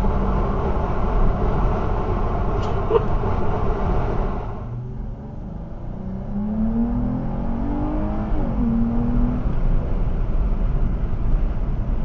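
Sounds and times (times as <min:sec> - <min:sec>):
car engine accelerating: 0:00.0 - 0:12.0
road rumble: 0:00.0 - 0:12.0.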